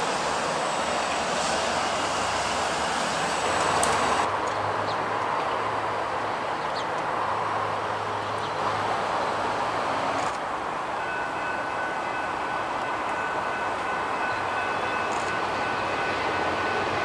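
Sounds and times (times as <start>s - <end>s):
diesel train engine hum: 0.0s - 17.0s
train rolling rumble: 0.0s - 17.0s.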